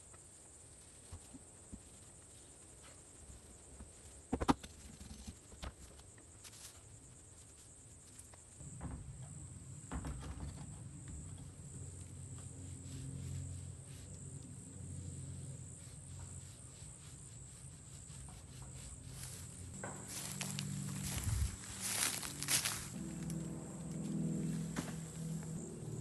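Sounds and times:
insects trilling: 0.1s - 26.0s
low hum: 11.0s - 26.0s.

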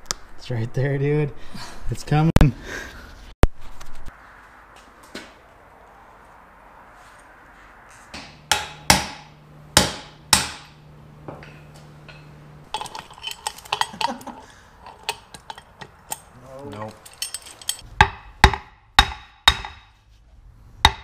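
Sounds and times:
metal tools clinking: 11.5s - 17.9s.

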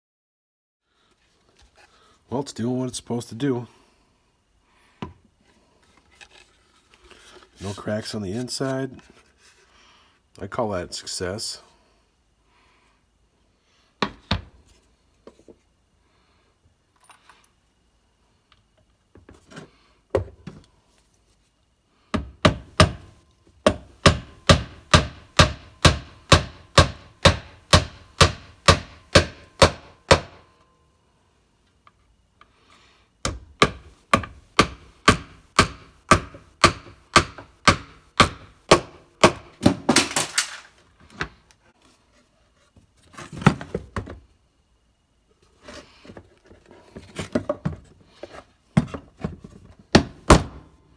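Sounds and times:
hammer striking nails into wood: 22.2s - 30.5s, 33.2s - 40.5s, 49.9s - 50.6s.

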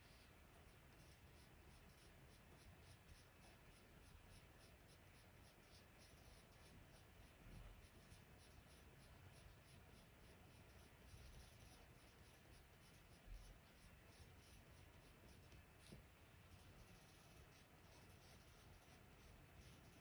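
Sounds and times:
pencil scratching on paper: 0.0s - 20.0s.

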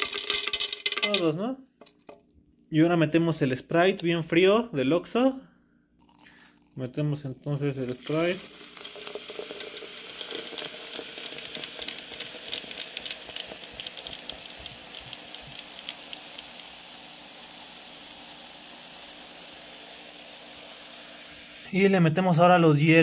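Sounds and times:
soda fizzing and crackling: 0.0s - 1.2s, 6.0s - 21.7s
soda pouring over ice: 0.0s - 1.2s, 6.0s - 21.7s.

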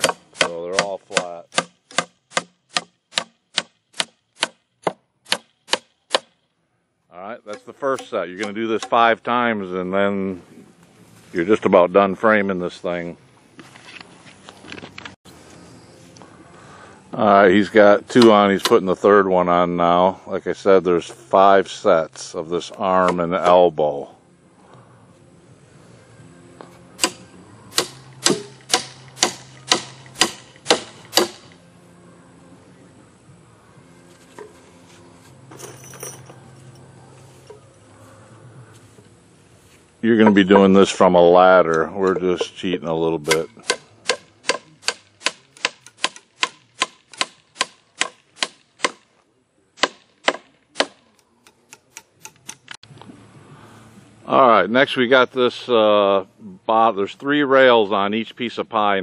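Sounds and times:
hammer striking nail into wood: 0.0s - 6.3s, 27.0s - 31.5s, 43.3s - 49.0s, 49.8s - 51.0s.

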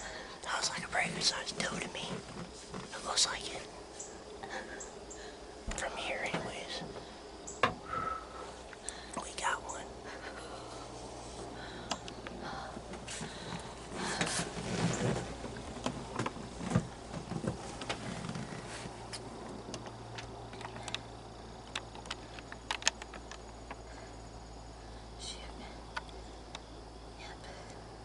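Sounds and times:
people rustling and shuffling: 0.0s - 4.8s, 12.2s - 19.6s
faint low hum: 0.0s - 28.0s
sharp clicks: 19.7s - 23.8s.

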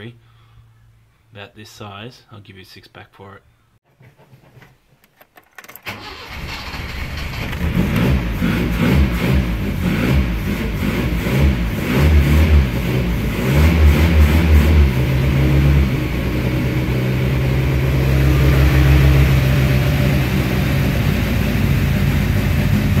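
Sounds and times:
car engine revving and idling: 6.9s - 23.0s.

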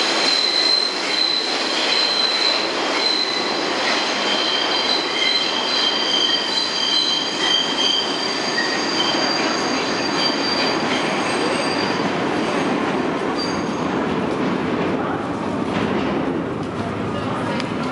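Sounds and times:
train wheels squealing: 0.2s - 12.6s, 13.4s - 13.9s.

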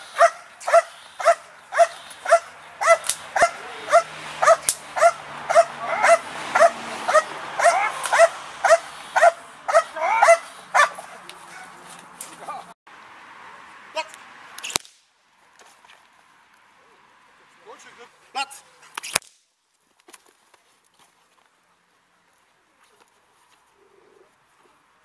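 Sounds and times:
dog barking: 0.2s - 11.8s.

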